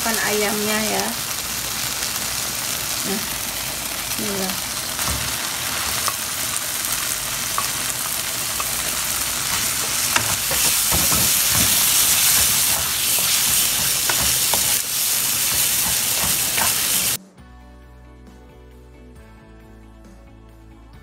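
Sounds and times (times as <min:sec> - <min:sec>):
chicken sizzling in a frying pan: 0:00.0 - 0:17.2
wooden spatula scraping a pan: 0:06.8 - 0:17.2.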